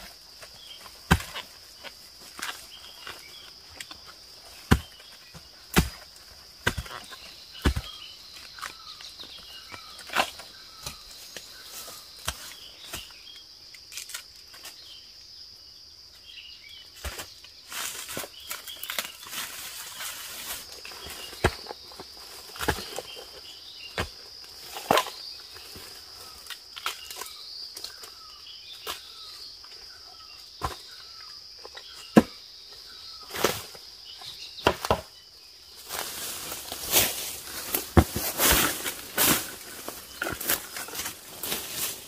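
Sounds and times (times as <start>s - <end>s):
high insect drone: 0.0s - 42.0s
machete chopping into soil: 1.1s - 1.4s, 5.7s - 7.0s
dry leaves rustling underfoot: 17.6s - 23.4s, 35.7s - 42.0s.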